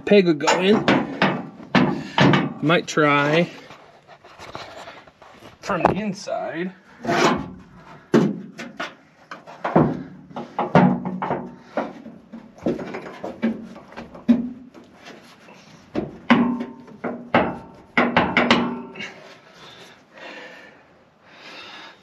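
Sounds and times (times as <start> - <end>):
metal hitch bracket clanking: 0.1 - 3.3.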